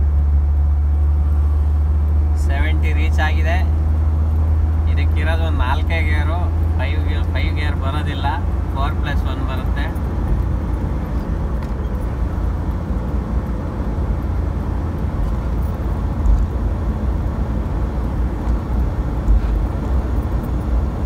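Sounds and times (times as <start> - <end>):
car engine drone: 0.0 - 21.0
road and wind noise: 0.0 - 21.0.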